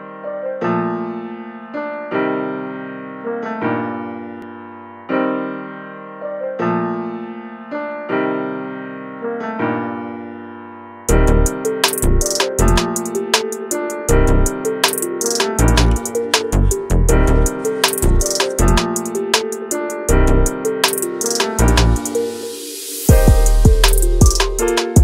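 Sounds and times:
slow piano chords: 0.0 - 25.0
drums: 11.8 - 13.8, 14.8 - 16.5, 17.8 - 19.6, 20.8 - 22.1, 23.1 - 25.0.

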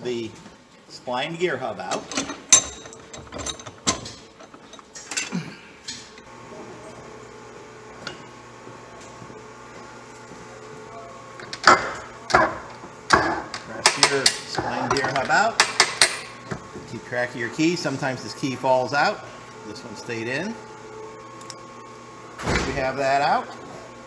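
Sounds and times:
faint machine hum: 0.0 - 24.0
metal knocks and clanks: 1.9 - 5.0.

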